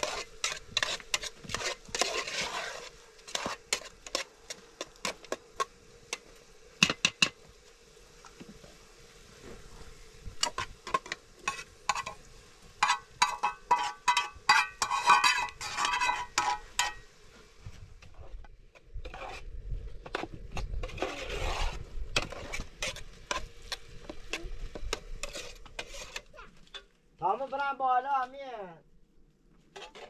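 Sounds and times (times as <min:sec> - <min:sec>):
food mixing scrape in pot: 0:00.0 - 0:07.4, 0:10.4 - 0:12.2, 0:12.8 - 0:17.1, 0:18.1 - 0:26.9, 0:29.7 - 0:30.0
pot and pan clanking: 0:12.8 - 0:17.1.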